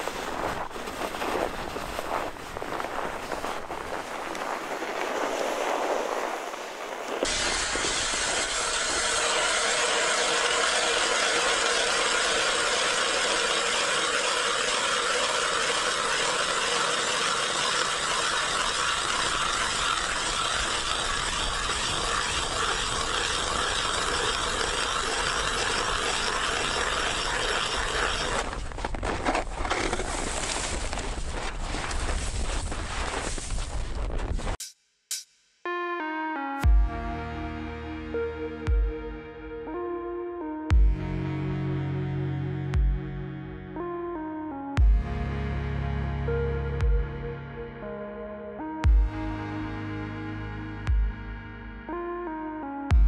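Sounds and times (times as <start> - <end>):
ice auger grinding through ice: 0.0 - 33.6.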